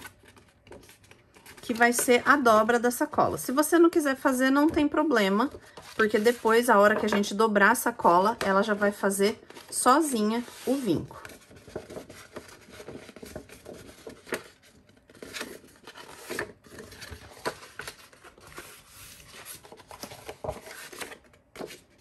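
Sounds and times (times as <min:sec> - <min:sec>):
paper folding and rustling: 0:00.0 - 0:02.8, 0:08.2 - 0:22.0.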